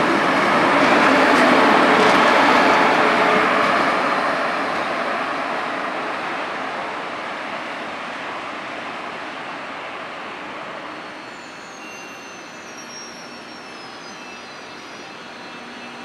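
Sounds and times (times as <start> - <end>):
locomotive wheels on rails: 0.0 - 4.9.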